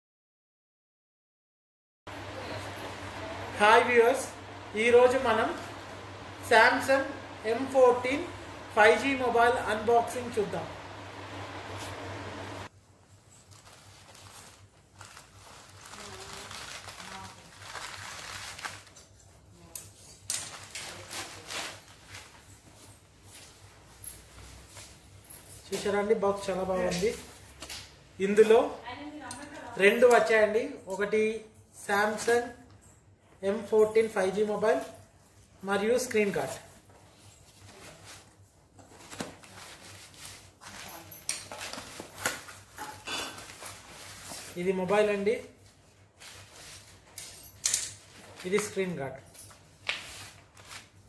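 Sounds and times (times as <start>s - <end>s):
plastic crinkling and rustling: 13.1s - 26.0s, 36.4s - 51.0s
scissors cutting plastic bag: 13.5s - 19.1s.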